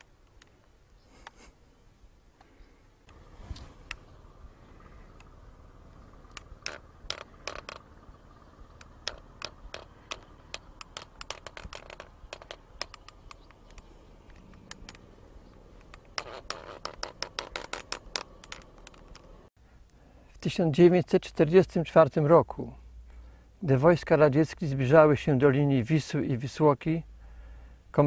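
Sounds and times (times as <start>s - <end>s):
sharp clicks and taps: 8.8s - 19.3s.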